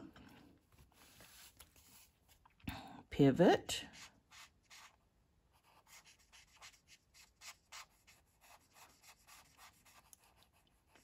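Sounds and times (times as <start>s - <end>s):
marker scratching on card: 4.0s - 5.0s, 5.6s - 11.0s.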